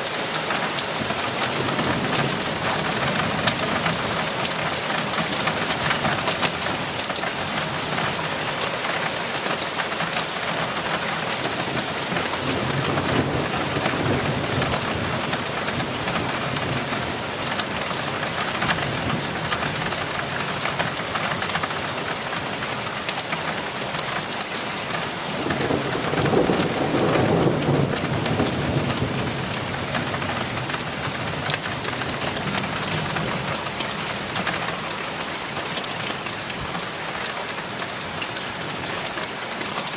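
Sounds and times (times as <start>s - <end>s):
steady rain falling: 0.0s - 39.9s
thunder rumbling: 11.6s - 19.8s, 25.4s - 33.8s.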